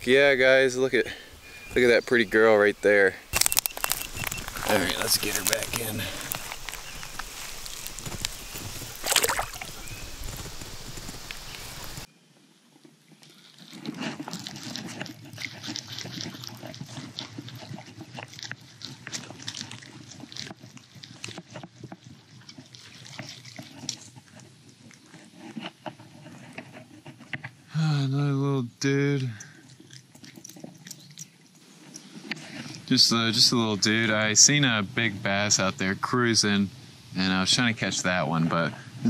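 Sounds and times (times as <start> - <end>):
small crackles and splashes: 3.3 - 12.1, 12.8 - 25.4, 29.4 - 32.8
fish splashing: 3.4 - 12.0
water sloshing: 3.5 - 10.2.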